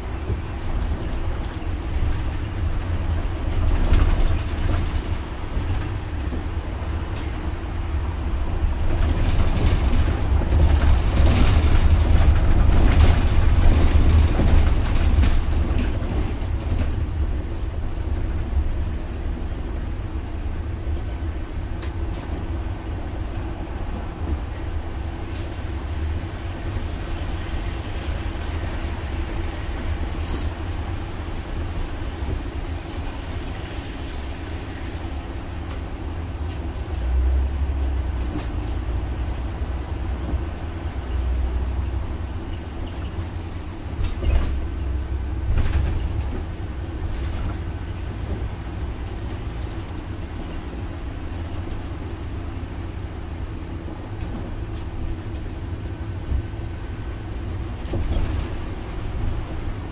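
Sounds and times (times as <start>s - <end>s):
bus engine and road rumble: 0.0s - 59.9s
bus fittings rattling: 0.2s - 7.6s, 8.5s - 18.5s, 40.2s - 52.7s, 57.5s - 59.9s.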